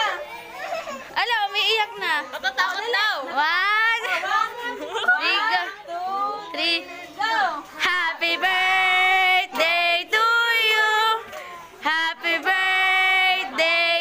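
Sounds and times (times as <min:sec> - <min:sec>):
child singing: 0:05.0 - 0:14.0.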